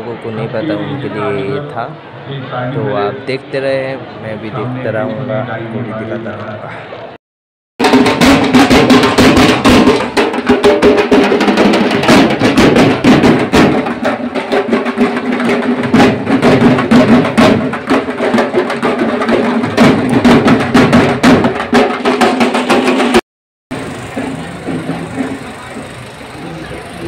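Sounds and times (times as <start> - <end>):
loud rapid drumming: 7.8 - 27.0.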